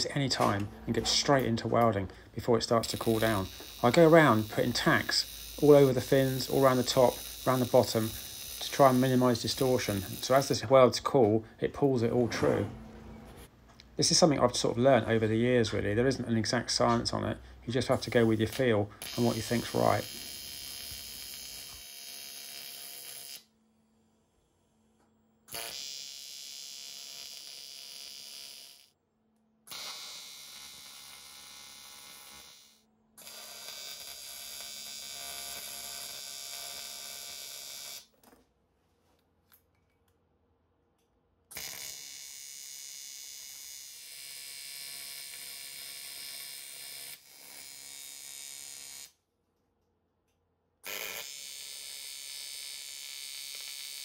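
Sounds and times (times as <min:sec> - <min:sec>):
welding arc buzzing: 0:00.3 - 0:10.7, 0:17.8 - 0:23.5, 0:25.5 - 0:28.9, 0:29.7 - 0:38.1, 0:41.5 - 0:49.2, 0:50.8 - 0:54.0.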